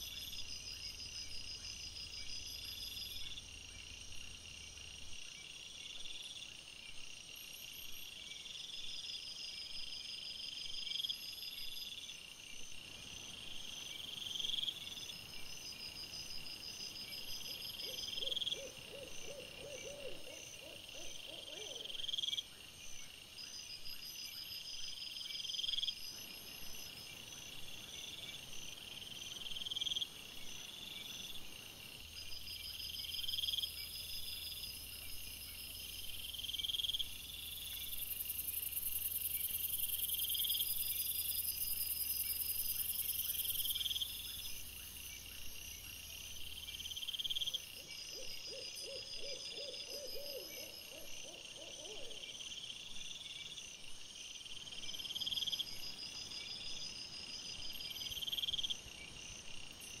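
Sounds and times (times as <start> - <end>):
crickets chirring: 0.0 - 60.0.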